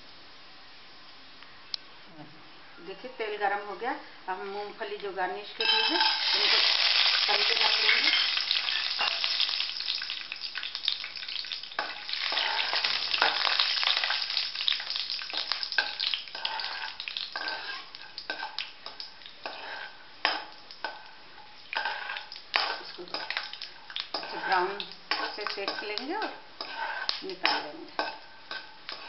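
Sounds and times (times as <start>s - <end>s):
peanuts sizzling in hot oil: 4.6s - 29.0s
metal spoon scraping pan: 5.6s - 6.6s, 7.3s - 9.4s, 15.3s - 20.5s, 21.7s - 23.5s, 24.1s - 29.0s.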